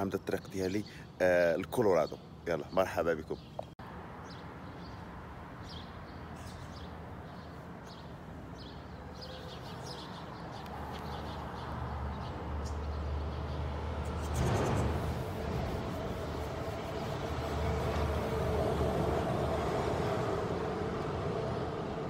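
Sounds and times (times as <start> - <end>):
small birds chirping: 0.0 - 18.0
street background: 0.0 - 22.0
vehicle rumble: 10.5 - 22.0.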